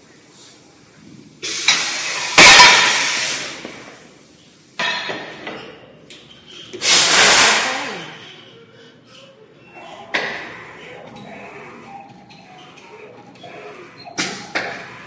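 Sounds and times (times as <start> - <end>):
hissing rushing noise with clinks: 1.4 - 3.8, 6.6 - 7.9.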